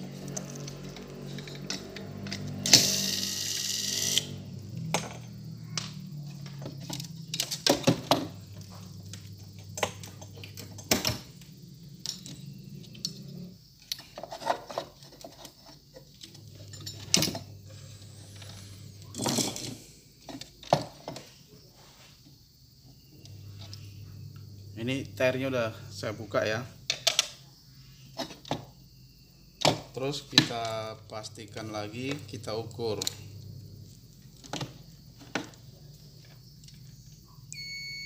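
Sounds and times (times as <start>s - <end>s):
steady low hum: 0.0s - 13.9s, 16.0s - 20.3s, 22.9s - 26.9s
tools clicking and knocking: 0.2s - 3.1s, 4.0s - 11.4s, 26.9s - 27.4s.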